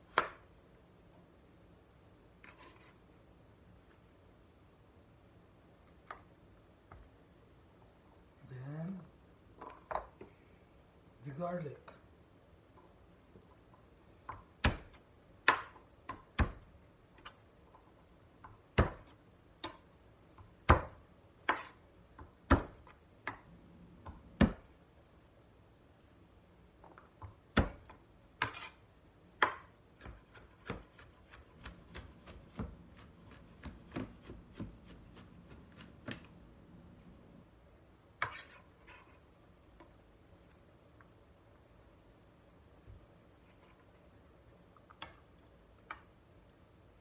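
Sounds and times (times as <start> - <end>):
knife chopping on cutting board: 29.4 - 36.3.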